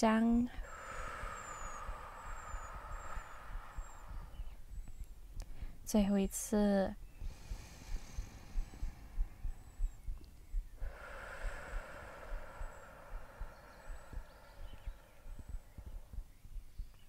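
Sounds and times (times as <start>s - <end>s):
wind buffeting microphone: 0.0s - 17.0s
woman exhaling slowly: 0.5s - 4.7s, 7.2s - 10.0s, 10.8s - 16.2s.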